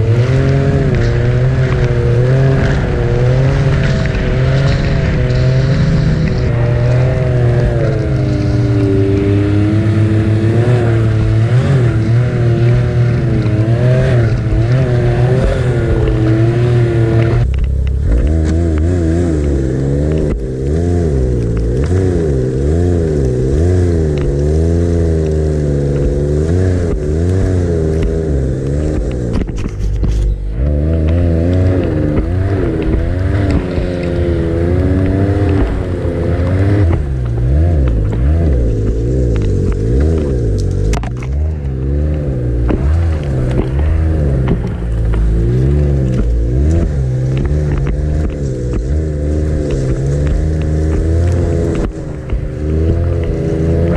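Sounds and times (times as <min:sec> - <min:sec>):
snowmobile engine revving: 0:00.0 - 0:53.9.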